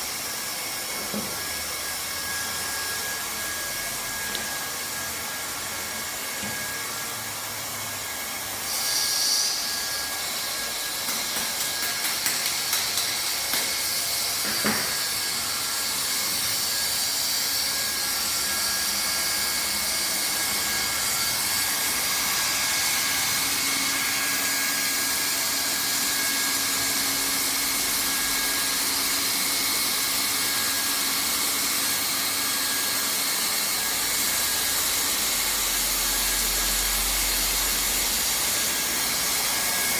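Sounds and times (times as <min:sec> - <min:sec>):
hot-air welding gun hissing: 0:08.6 - 0:17.0.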